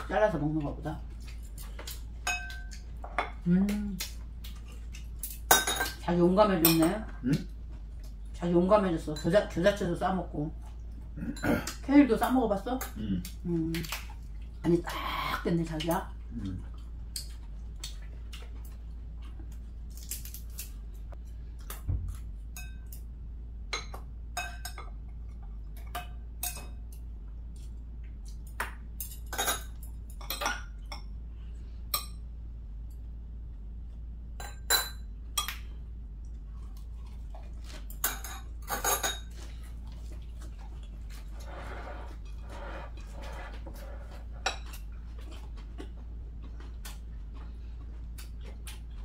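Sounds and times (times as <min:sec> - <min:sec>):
low steady hum: 0:00.0 - 0:49.0
chopsticks clinking on bowls: 0:01.5 - 0:03.4.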